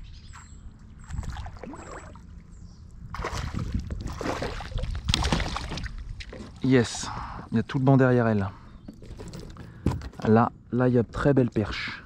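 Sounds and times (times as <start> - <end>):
water sloshing against hull: 0.3 - 7.5
fish splashing and thrashing in water: 1.0 - 2.4, 3.1 - 6.6.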